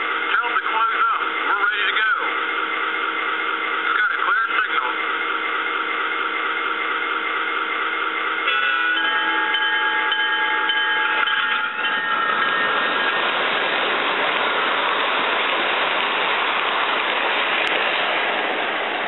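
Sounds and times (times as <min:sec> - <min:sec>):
steady chord of tones: 0:00.0 - 0:16.7
train running hiss: 0:00.0 - 0:19.0
train horn chord: 0:04.9 - 0:13.1.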